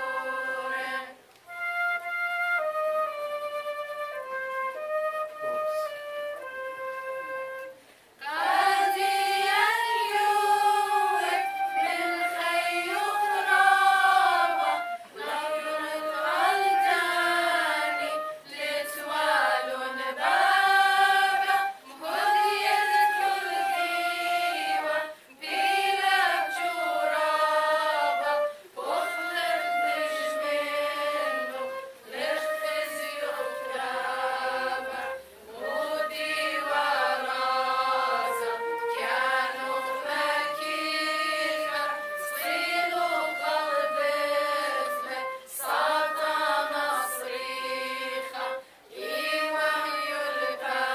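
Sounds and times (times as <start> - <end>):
women's choir singing a hymn: 0.0 - 1.2, 8.2 - 50.9
flute playing: 0.0 - 50.9.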